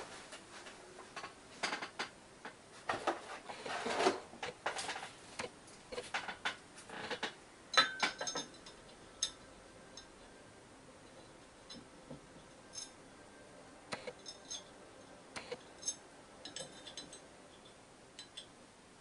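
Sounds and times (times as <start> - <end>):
metal parts clicking and scraping: 14.0 - 14.7, 15.4 - 18.5.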